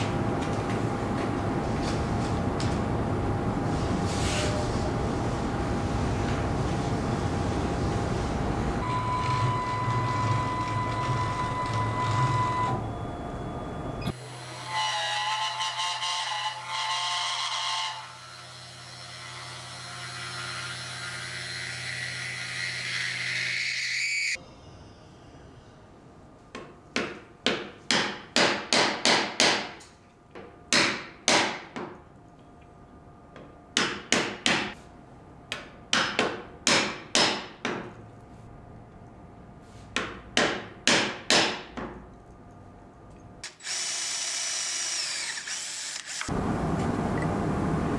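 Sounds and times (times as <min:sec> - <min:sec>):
humming machine: 0:46.0 - 0:47.9.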